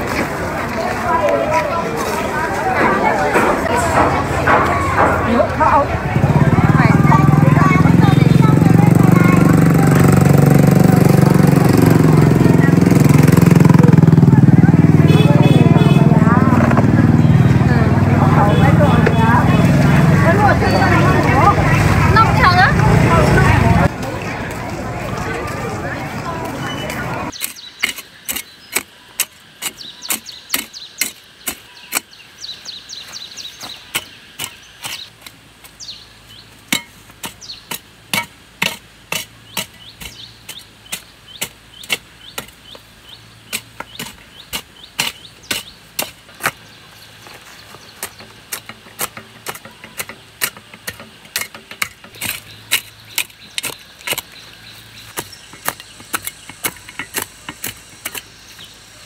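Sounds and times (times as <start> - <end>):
hand tool striking: 3.3 - 5.6, 27.4 - 32.1, 33.9 - 35.1, 36.7 - 42.8, 43.5 - 46.6, 48.0 - 54.4, 55.0 - 58.7.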